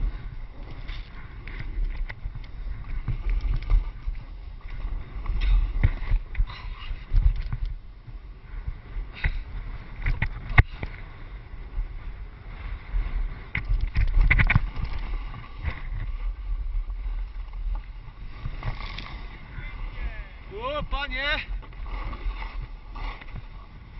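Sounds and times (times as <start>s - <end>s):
wind on microphone: 0.0s - 23.9s
board scraping on snow: 10.7s - 20.3s
gear knocks and clatters: 13.5s - 16.0s.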